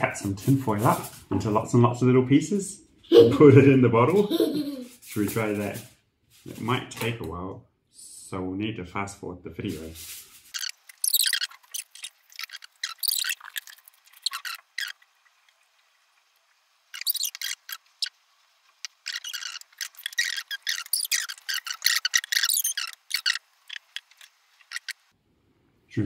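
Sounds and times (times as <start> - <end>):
foil crinkling: 0.0 - 1.5, 9.6 - 14.9.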